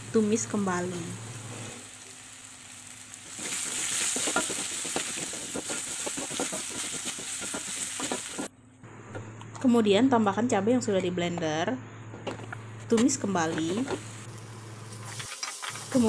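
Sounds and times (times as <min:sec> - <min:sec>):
paste sizzling in hot oil: 0:01.3 - 0:08.5
spatula scraping pan: 0:03.4 - 0:08.5.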